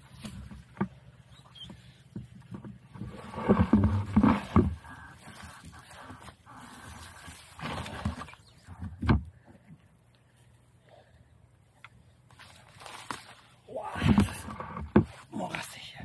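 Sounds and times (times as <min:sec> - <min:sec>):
rustling vegetation: 0:00.0 - 0:16.0
footsteps scuffing and squelching: 0:12.3 - 0:13.6.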